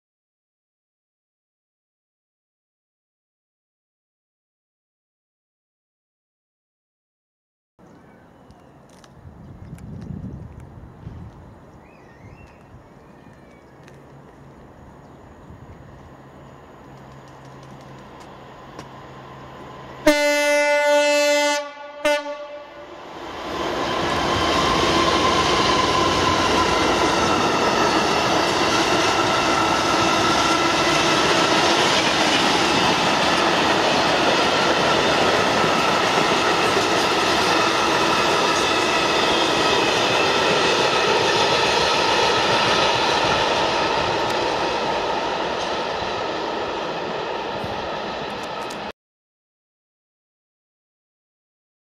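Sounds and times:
locomotive horn: 0:20.0 - 0:23.0.

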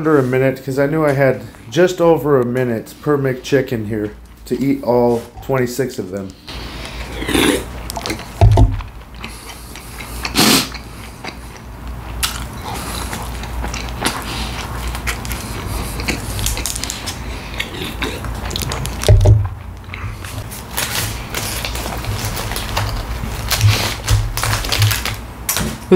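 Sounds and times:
bite crunch: 0:06.8 - 0:25.7
person chewing wet smacks: 0:07.6 - 0:20.4
low thump: 0:19.1 - 0:19.5.

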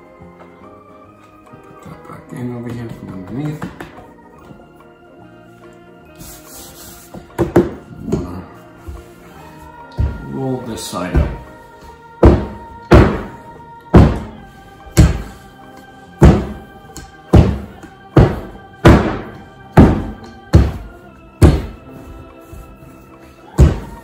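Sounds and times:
faint background music: 0:00.0 - 0:24.0
rolling pin thudding on dough: 0:11.1 - 0:11.6, 0:12.2 - 0:14.4, 0:15.0 - 0:15.4, 0:16.2 - 0:22.0, 0:23.5 - 0:24.0.

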